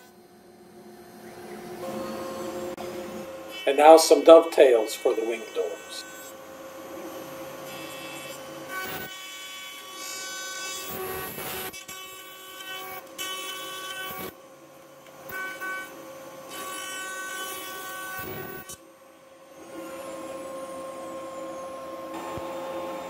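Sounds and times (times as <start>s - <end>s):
router whining cutting wood: 1.0s - 23.0s.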